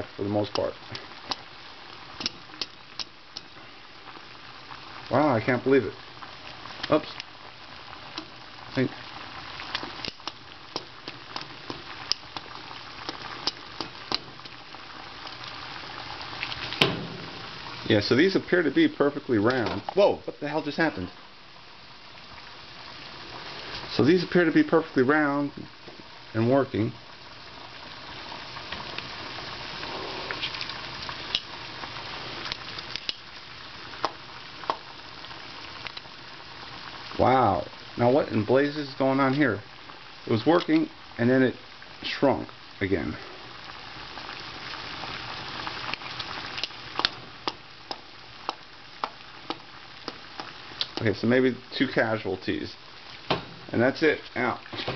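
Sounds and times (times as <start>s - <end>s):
water boiling in a saucepan: 0.0s - 54.9s.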